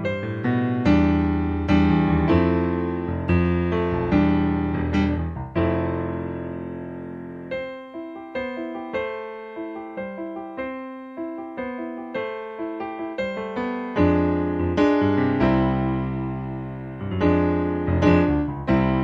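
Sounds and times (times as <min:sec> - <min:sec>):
solo piano music: 0:00.0 - 0:19.0.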